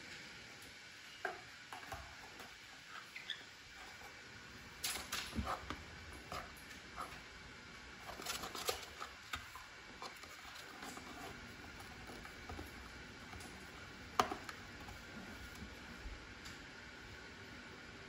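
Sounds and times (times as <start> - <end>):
parrot shredding cardboard: 7.9 - 15.9.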